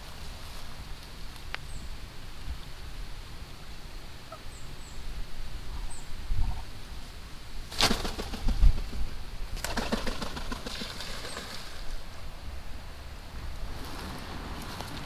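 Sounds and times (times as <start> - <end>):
duck wings flapping on water: 7.7 - 11.9.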